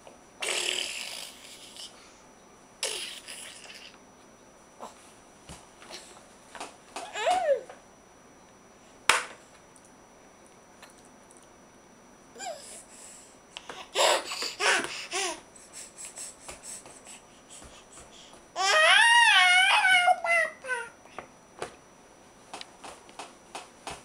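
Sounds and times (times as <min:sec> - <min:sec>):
baby laughing and squealing: 0:13.9 - 0:15.3.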